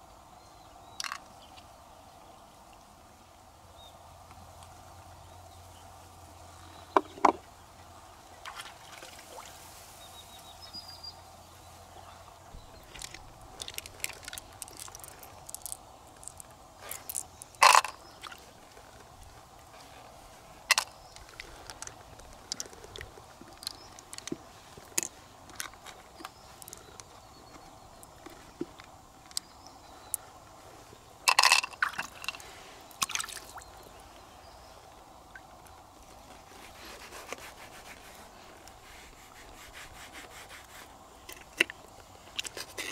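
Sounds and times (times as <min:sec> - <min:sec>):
faint steady background noise: 0:00.0 - 0:42.9
clicks of mussel shells: 0:01.0 - 0:01.3, 0:12.8 - 0:18.4, 0:20.6 - 0:27.1, 0:31.3 - 0:33.6.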